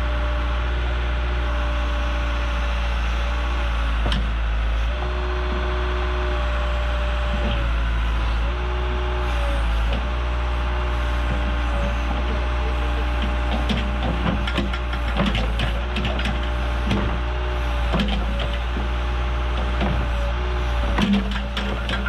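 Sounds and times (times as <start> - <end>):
backhoe engine running: 0.0 - 22.0.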